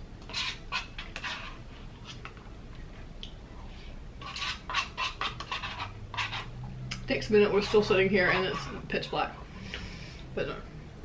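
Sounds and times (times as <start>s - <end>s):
spoon scraping paper cup: 0.3s - 2.4s, 4.2s - 6.5s, 7.4s - 8.9s.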